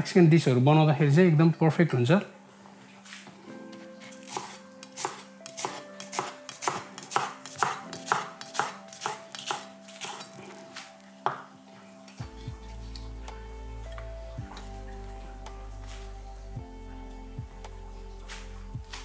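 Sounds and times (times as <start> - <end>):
knife chopping onion on board: 4.2 - 10.3.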